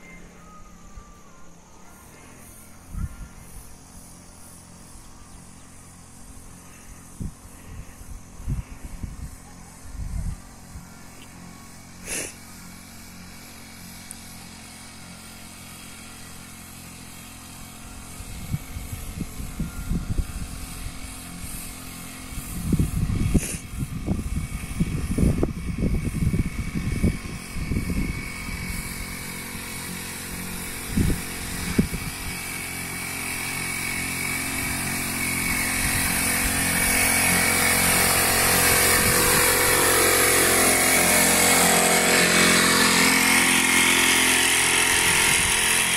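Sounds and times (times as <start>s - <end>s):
sprayer small engine running: 0.0s - 45.9s
spray hissing: 2.4s - 14.6s, 17.1s - 25.4s, 27.1s - 45.9s
wind buffeting microphone: 22.3s - 29.2s, 30.5s - 32.4s, 37.8s - 39.9s.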